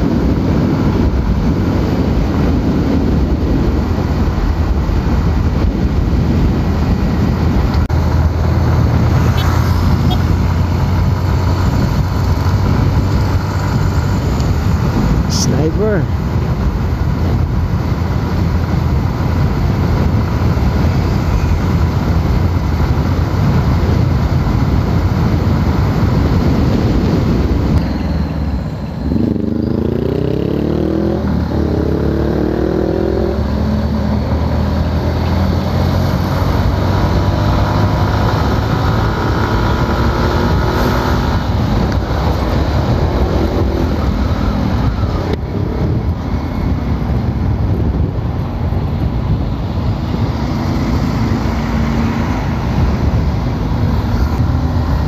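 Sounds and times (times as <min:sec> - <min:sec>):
motorcycle engine accelerating: 0:00.0 - 0:55.0
wind and road rush: 0:00.0 - 0:55.0.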